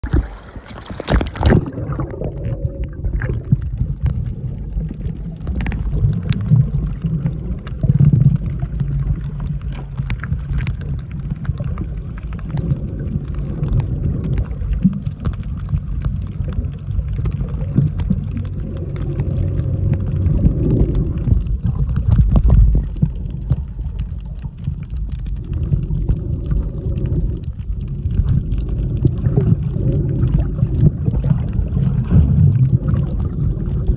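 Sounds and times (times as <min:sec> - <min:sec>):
water splash: 0:00.0 - 0:04.1
bubbling: 0:00.0 - 0:33.9
muffled underwater sloshing: 0:00.0 - 0:33.9
underwater clicks: 0:00.0 - 0:33.9.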